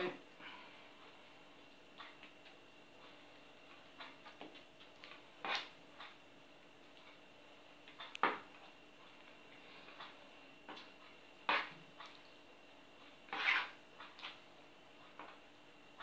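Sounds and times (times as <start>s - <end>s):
fork stirring dough: 11.5s - 12.2s, 13.2s - 14.4s.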